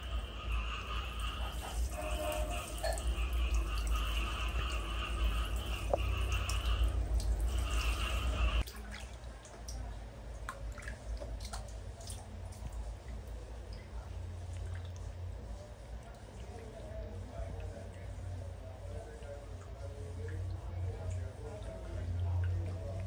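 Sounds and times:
shower head spraying water: 0.0s - 8.6s
water dripping and splashing: 0.0s - 18.1s, 19.2s - 23.0s.

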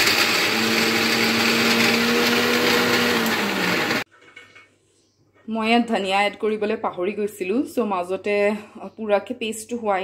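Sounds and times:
electric mixer grinder running: 0.0s - 4.1s.

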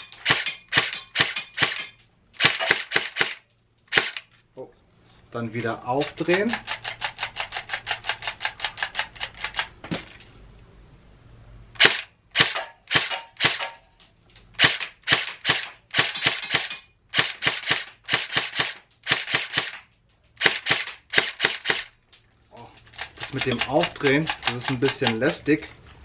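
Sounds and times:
airsoft gun single shots: 0.2s - 4.3s, 11.8s - 13.8s, 14.6s - 19.8s, 20.4s - 21.9s
magazine wheel ratcheting clicks: 6.0s - 9.7s, 22.8s - 25.4s.

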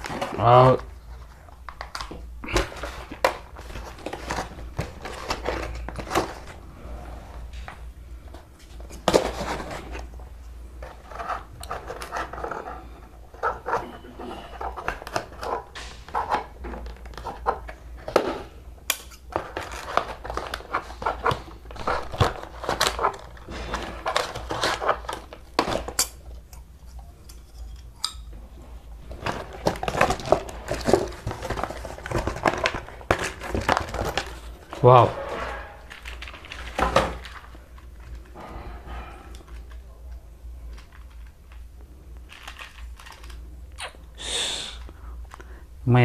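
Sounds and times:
cardboard rustling: 0.0s - 7.0s, 8.3s - 18.4s, 19.3s - 26.0s, 29.0s - 35.1s.

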